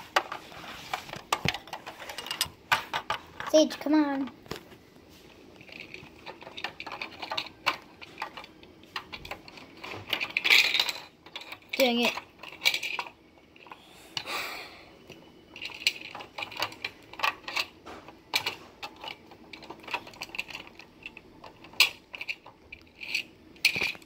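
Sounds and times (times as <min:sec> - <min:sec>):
plastic toys clicking on table: 0:05.6 - 0:13.8, 0:15.1 - 0:24.0.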